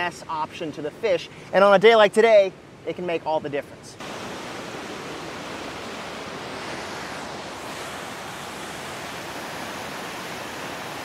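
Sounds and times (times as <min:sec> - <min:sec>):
water rushing through spillway: 0:04.0 - 0:11.0.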